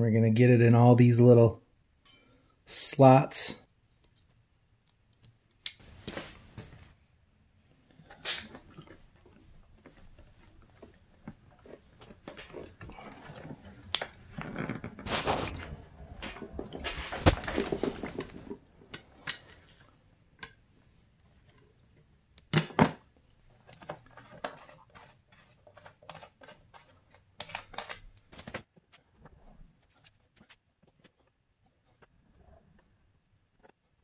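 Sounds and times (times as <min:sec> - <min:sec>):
tool scraping plastic: 0:08.0 - 0:19.7, 0:23.5 - 0:34.0.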